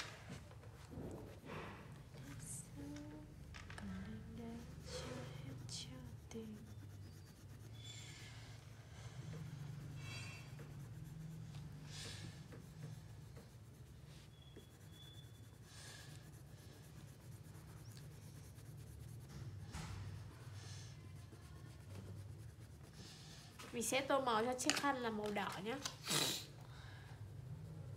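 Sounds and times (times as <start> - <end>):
crayon scratching on paper: 4.0 - 26.0.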